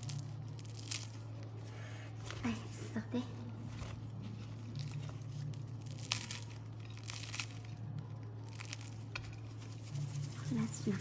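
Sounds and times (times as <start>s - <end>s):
pastry crust crackling and crunching: 0.0s - 11.0s.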